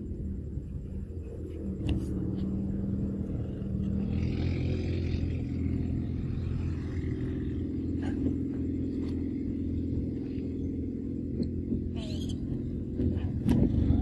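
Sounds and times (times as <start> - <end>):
low rumbling hum: 0.0 - 14.0.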